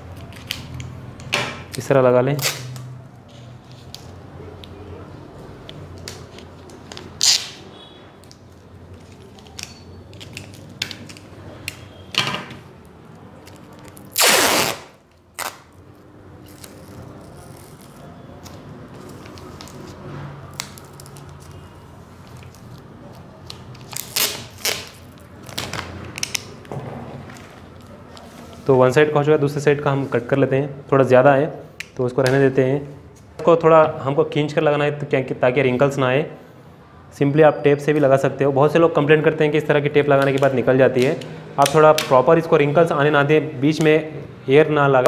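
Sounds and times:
sticky tape ripping off roll: 0:02.3 - 0:02.9, 0:07.0 - 0:07.6, 0:13.5 - 0:15.8, 0:16.4 - 0:18.5, 0:23.5 - 0:26.6.

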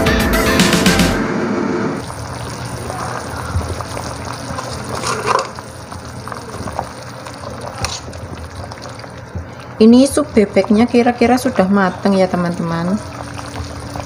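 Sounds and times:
music: 0:00.0 - 0:02.0
ladle stirring soup: 0:02.0 - 0:14.0
soup bubbling in a pot: 0:02.0 - 0:14.0.

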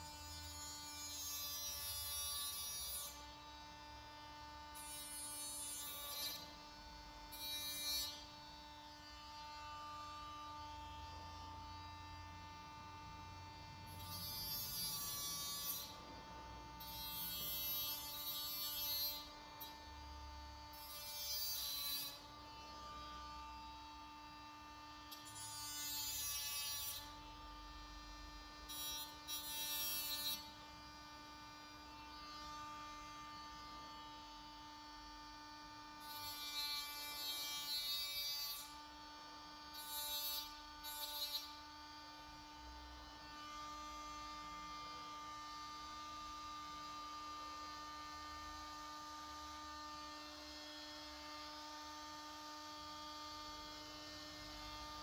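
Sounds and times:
grinder cutting metal: 0:00.0 - 0:03.2, 0:04.8 - 0:06.5, 0:07.3 - 0:08.4, 0:13.9 - 0:19.8, 0:20.7 - 0:23.2, 0:25.1 - 0:27.2, 0:28.7 - 0:30.5, 0:36.0 - 0:38.8, 0:39.7 - 0:41.6.

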